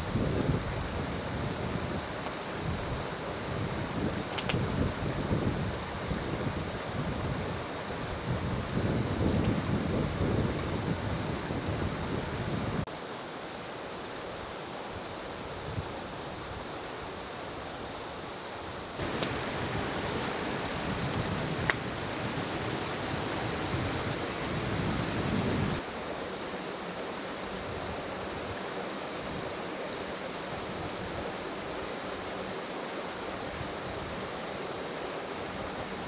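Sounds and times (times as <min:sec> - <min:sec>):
stream flowing over stones: 0:12.9 - 0:36.0.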